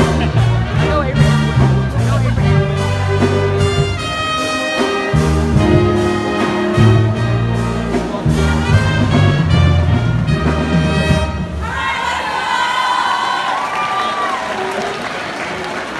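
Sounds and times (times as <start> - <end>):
brass band playing: 0.0 - 12.8.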